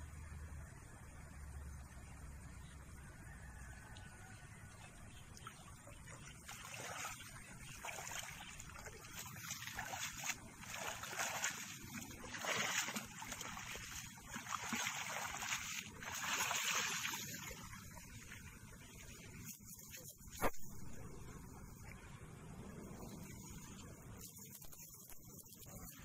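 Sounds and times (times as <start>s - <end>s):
water sloshing and splashing: 5.0s - 22.0s, 22.9s - 26.0s
water streaming off a net: 6.4s - 18.2s.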